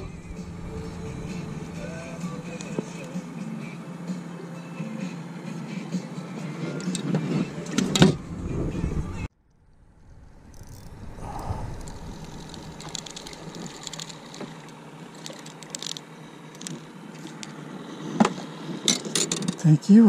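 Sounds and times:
fishing reel clicking: 0:10.5 - 0:11.0, 0:11.7 - 0:16.8.

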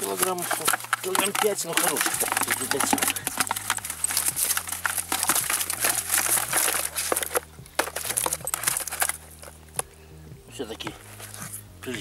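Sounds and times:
fish flapping against bucket: 0:00.0 - 0:09.6
mesh net rustling: 0:00.0 - 0:09.7.

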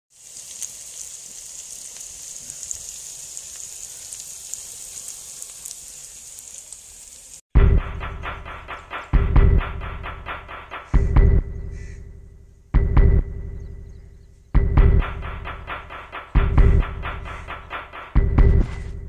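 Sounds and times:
chicken sizzling in hot oil: 0:00.1 - 0:07.5
music with heavy beat: 0:07.6 - 0:12.2, 0:12.8 - 0:13.6, 0:14.6 - 0:19.0.

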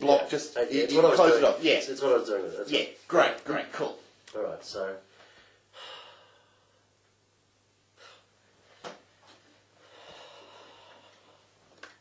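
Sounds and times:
person exhaling: 0:05.2 - 0:06.9, 0:08.0 - 0:08.3, 0:09.8 - 0:11.5.

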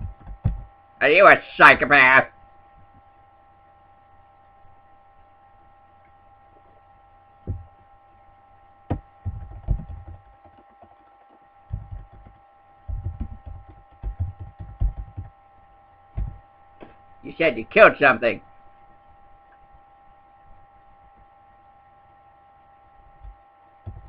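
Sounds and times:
steady electrical hum: 0:00.0 - 0:24.0
typing on a keyboard: 0:09.4 - 0:15.3.

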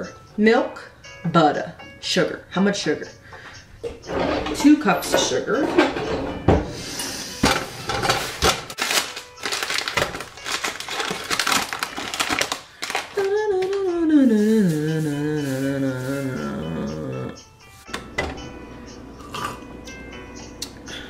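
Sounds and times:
paper bag crinkling: 0:08.2 - 0:13.9
person humming a wavering note: 0:13.2 - 0:17.5.

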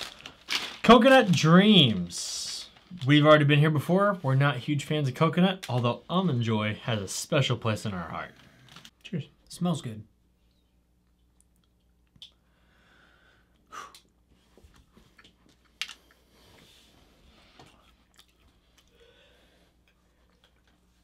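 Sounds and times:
people chewing crunchy cookies: 0:13.6 - 0:21.0.

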